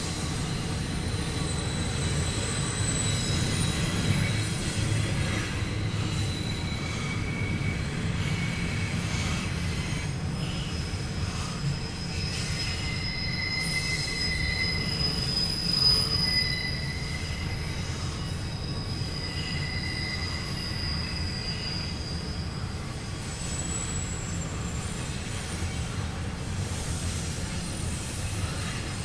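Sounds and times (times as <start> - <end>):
freight train rumbling past: 0.0 - 29.0
train wheels squealing: 0.0 - 29.0.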